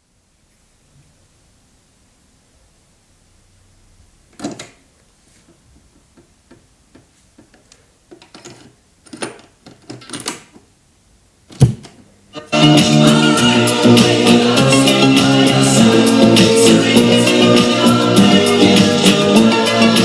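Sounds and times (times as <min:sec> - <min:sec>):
cassette door click: 0:04.4 - 0:04.8, 0:11.5 - 0:12.0
play key mechanical clunk: 0:04.4 - 0:04.8, 0:11.5 - 0:12.0.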